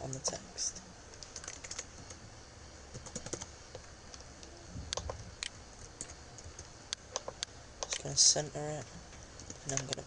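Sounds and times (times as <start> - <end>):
keyboard and mouse clicking: 1.1 - 2.2, 2.9 - 3.5, 4.9 - 8.1, 9.4 - 10.0.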